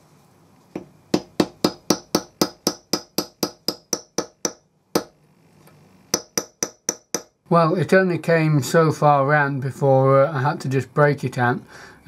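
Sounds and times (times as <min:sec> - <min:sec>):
hammer striking metal punch: 0:00.8 - 0:05.2, 0:06.2 - 0:07.4.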